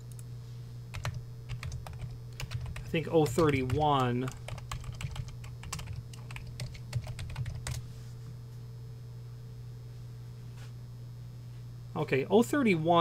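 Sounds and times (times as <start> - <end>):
steady low hum: 0.0 - 13.0
typing on computer keyboard: 1.0 - 7.8.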